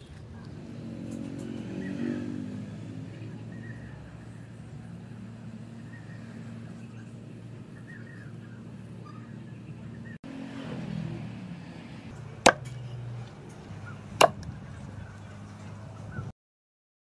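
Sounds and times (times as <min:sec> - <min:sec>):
axe chopping into wooden stump: 0:12.4 - 0:12.8, 0:14.2 - 0:14.4.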